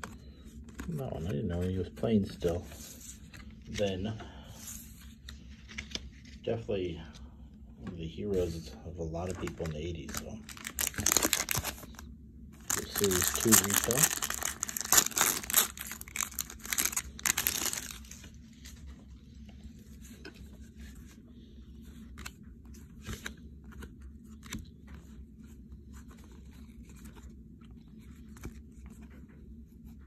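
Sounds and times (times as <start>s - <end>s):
foil wrapper tearing and crinkling: 9.4s - 12.0s, 12.6s - 18.2s.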